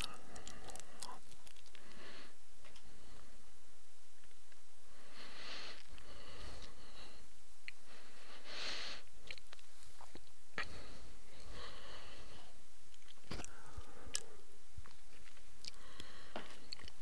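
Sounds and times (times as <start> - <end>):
breaths into microphone: 4.9 - 9.1, 15.7 - 16.8.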